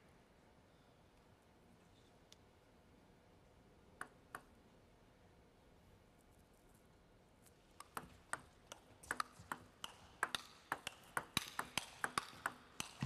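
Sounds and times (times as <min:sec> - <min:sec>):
table tennis ball clicking: 0:07.8 - 0:13.0.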